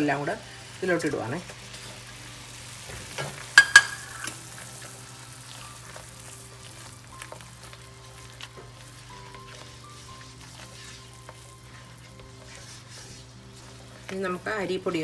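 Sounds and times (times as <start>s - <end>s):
syrup bubbling in a pan: 1.6s - 15.0s
spatula scraping: 5.6s - 15.0s.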